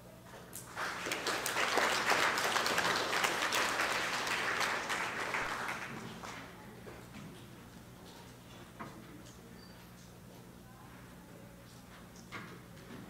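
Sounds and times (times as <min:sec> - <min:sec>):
audience applauding: 0:00.7 - 0:06.5.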